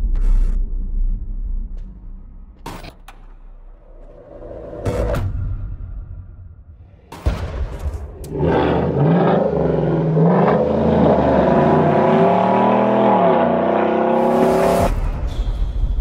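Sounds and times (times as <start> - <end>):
truck engine accelerating hard: 8.2 - 14.9.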